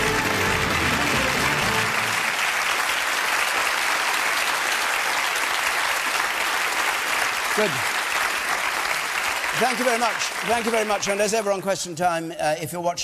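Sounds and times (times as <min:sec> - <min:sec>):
music: 0:00.0 - 0:02.4
audience applauding: 0:00.0 - 0:12.0.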